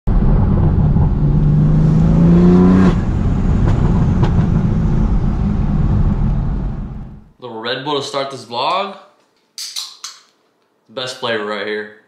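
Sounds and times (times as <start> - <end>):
car engine revving from inside cabin: 0.1 - 7.3.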